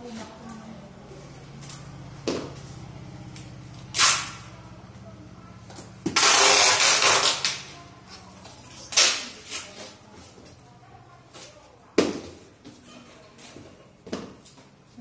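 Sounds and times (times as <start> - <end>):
tape and plastic crinkling: 6.1 - 10.0.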